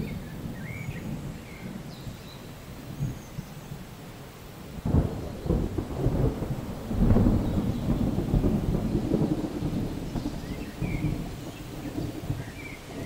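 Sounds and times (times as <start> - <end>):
thunder rumbling: 4.7 - 13.0.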